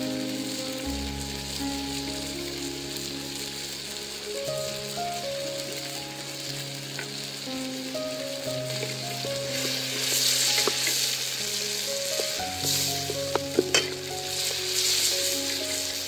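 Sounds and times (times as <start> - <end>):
background music: 0.0 - 16.0
vegetables sizzling in a wok: 0.0 - 16.0
wooden spoon stirring: 8.7 - 16.0.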